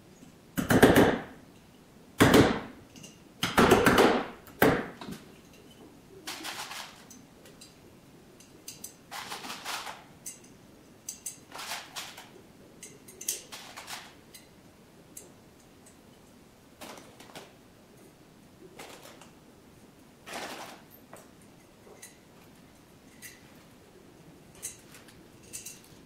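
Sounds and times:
small metal parts clinking: 8.4 - 12.2, 20.8 - 23.7, 24.5 - 26.0.

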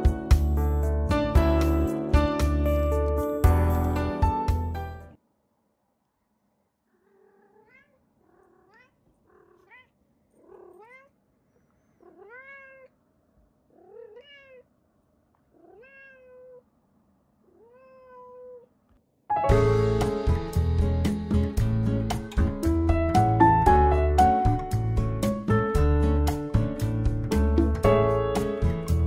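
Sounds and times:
background music: 0.0 - 5.2, 19.3 - 29.0
cat meowing: 6.9 - 11.2, 11.9 - 13.0, 13.7 - 14.7, 15.5 - 16.7, 17.4 - 18.8.

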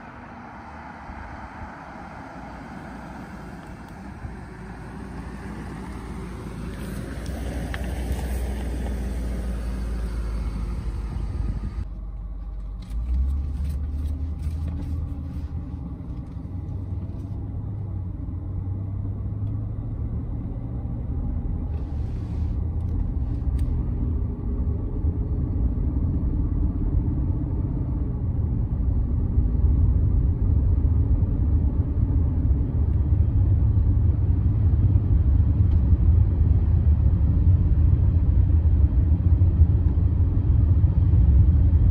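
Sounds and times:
car engine driving by: 0.0 - 25.8
engine and road rumble: 0.0 - 41.9
wind on microphone: 7.0 - 11.8.

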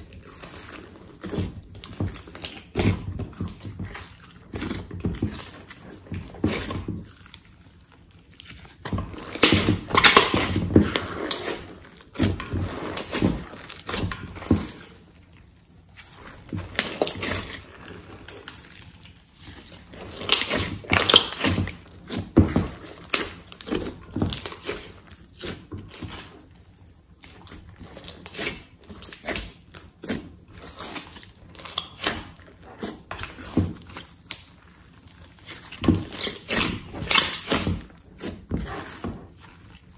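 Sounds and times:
slime squelching and popping: 0.0 - 39.9.

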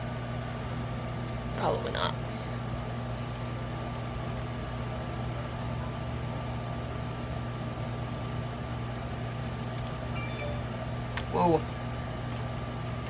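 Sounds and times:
machine hum: 9.8 - 13.0.

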